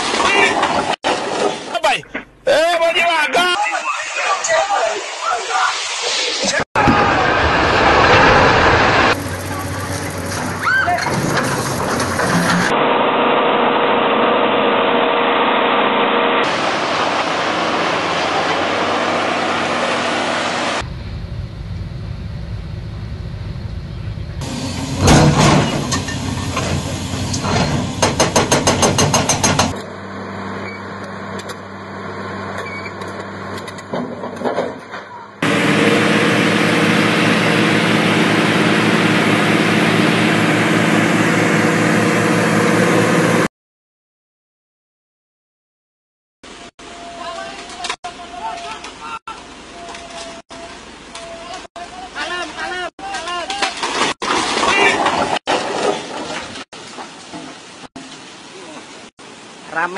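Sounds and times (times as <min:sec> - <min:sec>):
construction machinery diesel engines: 0:06.8 - 0:43.5, 0:46.5 - 0:53.9
rapid sharp knocks and clanks: 0:28.0 - 0:29.8.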